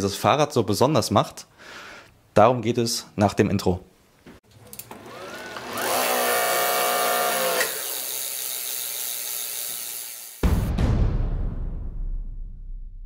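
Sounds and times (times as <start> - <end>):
friction motor whine: 4.8 - 10.4
bicycle wheel whirring: 5.0 - 10.4
loud intro music: 10.4 - 13.0.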